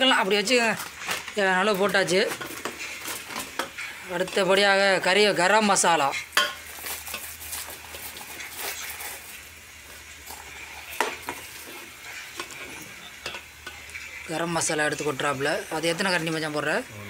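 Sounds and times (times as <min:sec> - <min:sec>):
food sizzling in pot: 0:00.0 - 0:17.0
foil packet crackling: 0:06.6 - 0:12.4.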